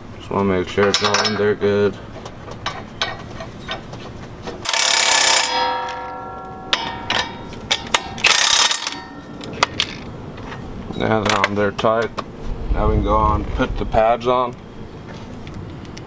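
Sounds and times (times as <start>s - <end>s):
impact wrench bursts: 4.6s - 5.8s, 8.2s - 9.1s.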